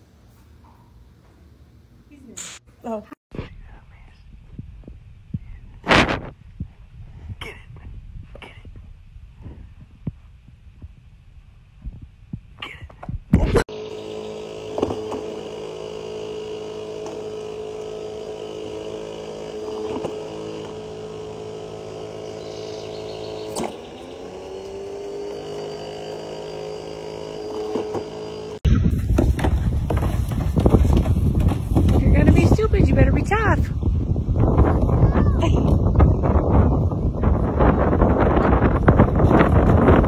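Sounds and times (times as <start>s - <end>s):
electric motor humming: 13.7s - 28.6s.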